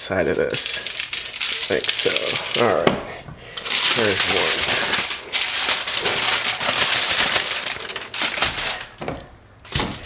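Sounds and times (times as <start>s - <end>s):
spice shaker rattling: 0.3s - 2.7s.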